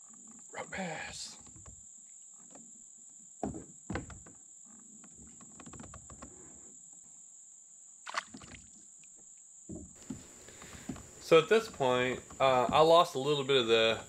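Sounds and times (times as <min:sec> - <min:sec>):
insects buzzing: 0:00.0 - 0:14.0.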